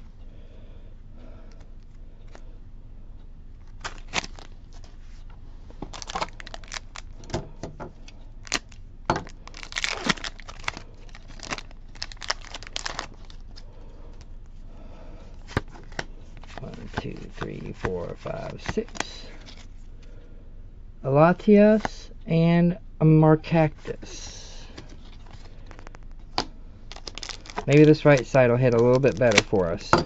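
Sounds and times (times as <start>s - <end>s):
foil wrapper crinkling and tearing: 3.6s - 4.9s, 5.9s - 7.4s, 8.4s - 13.6s, 15.8s - 19.7s, 24.8s - 26.3s, 26.9s - 29.9s.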